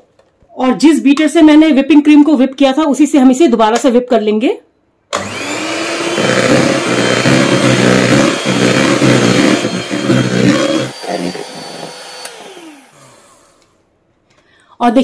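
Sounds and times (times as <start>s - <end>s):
electric hand mixer whirring: 5.1s - 13.8s.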